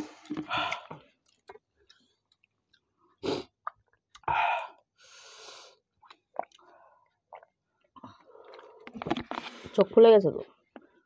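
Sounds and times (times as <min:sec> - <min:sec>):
mouth clicks and smacks: 0:06.0 - 0:06.6.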